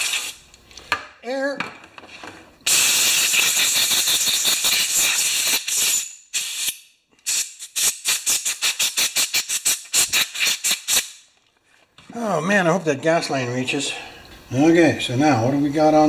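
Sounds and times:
compressed air blow gun hissing: 0:02.7 - 0:11.1
quick air puffs: 0:02.7 - 0:11.2.

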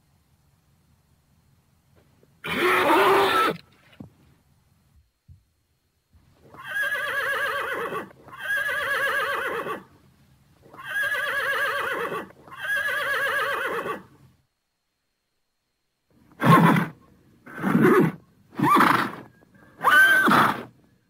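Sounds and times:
horse whinnying: 0:02.4 - 0:03.6, 0:06.5 - 0:09.9, 0:10.7 - 0:14.0, 0:16.4 - 0:20.7.

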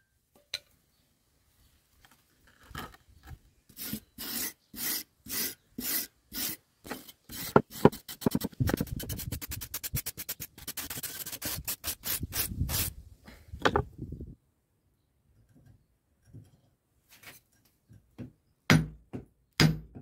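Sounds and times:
wire brush scrubbing rusty metal: 0:03.7 - 0:13.0.

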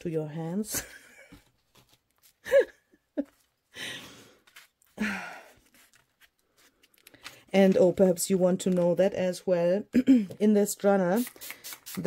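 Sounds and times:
paper pages turning: 0:01.6 - 0:02.4, 0:04.4 - 0:05.0, 0:05.6 - 0:09.2.

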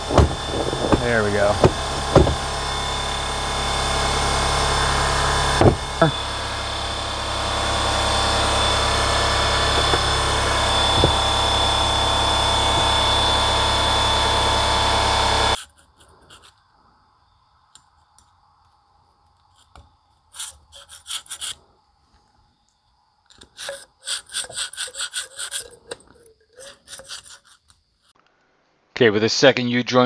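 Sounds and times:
hand tool scraping metal: 0:00.0 - 0:02.5, 0:15.6 - 0:16.6, 0:19.6 - 0:21.6, 0:23.3 - 0:27.8
power tool whining: 0:00.0 - 0:16.5, 0:23.3 - 0:27.8.

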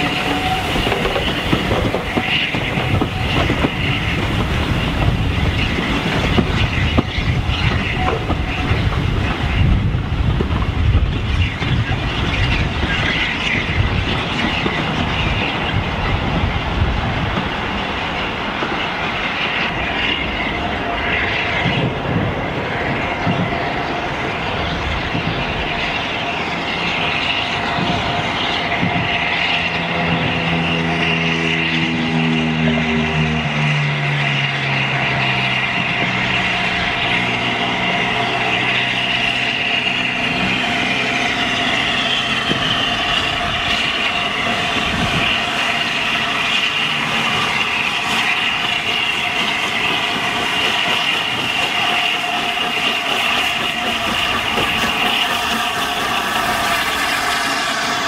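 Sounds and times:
steam train approaching: 0:00.0 - 0:58.0
road traffic hum: 0:26.6 - 0:58.0.

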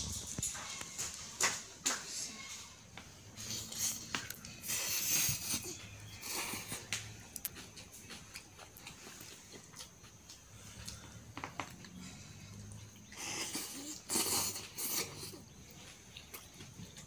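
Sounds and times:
open-mouth chewing: 0:03.4 - 0:17.0
person slurping noodles: 0:13.2 - 0:15.4.

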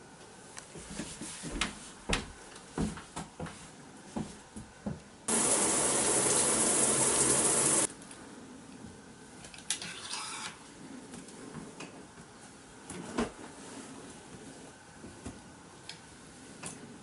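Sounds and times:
water running hard: 0:05.3 - 0:07.9.

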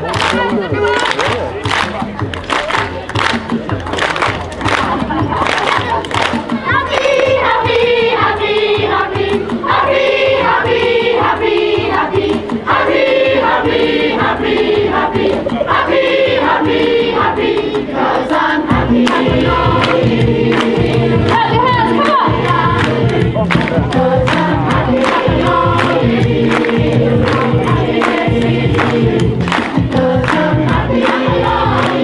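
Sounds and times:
deep bass accompaniment: 0:00.0 - 0:32.0
choir singing: 0:06.7 - 0:32.0.

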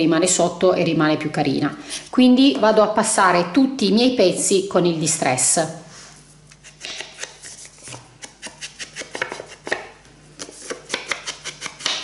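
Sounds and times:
foam tool tapping paper: 0:06.8 - 0:12.0.

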